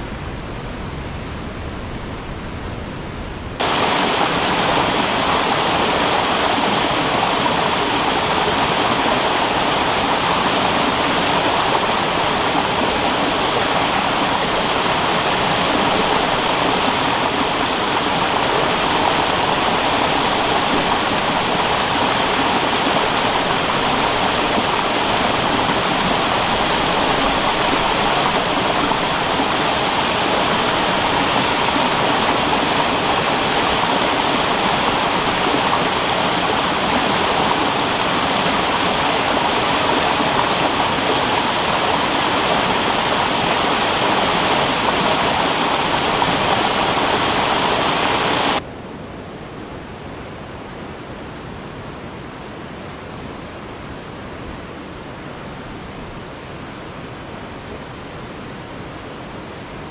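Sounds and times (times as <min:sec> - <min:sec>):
waterfall rushing: 0:03.6 - 0:48.6.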